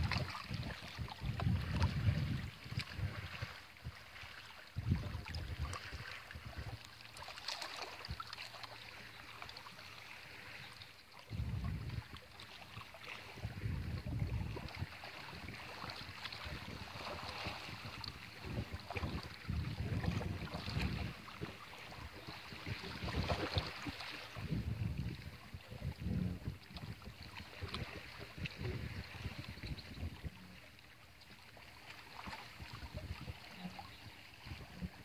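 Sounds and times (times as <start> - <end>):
wind buffeting microphone: 0.0 - 4.1, 4.8 - 6.8, 11.3 - 12.2, 13.0 - 30.6, 32.2 - 35.0.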